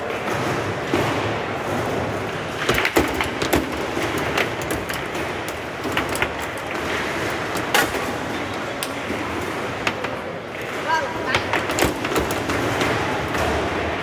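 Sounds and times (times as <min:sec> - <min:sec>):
steady background hum: 0:00.0 - 0:14.0
metal rods sliding and knocking: 0:02.6 - 0:10.3.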